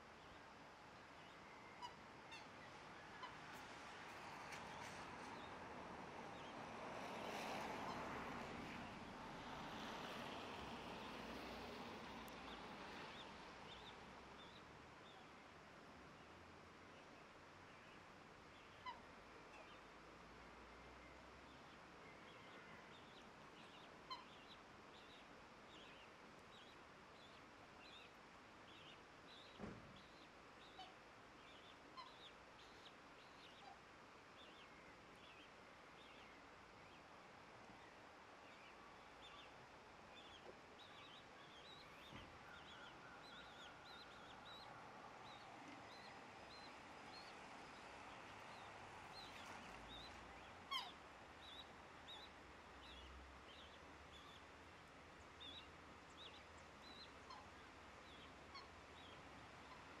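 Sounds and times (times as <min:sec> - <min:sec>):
cygnets peeping: 0:40.2 - 0:54.5.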